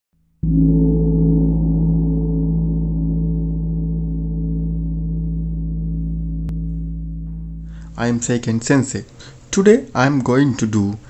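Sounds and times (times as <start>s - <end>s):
deep gong-like ringing tone: 0.4s - 8.9s.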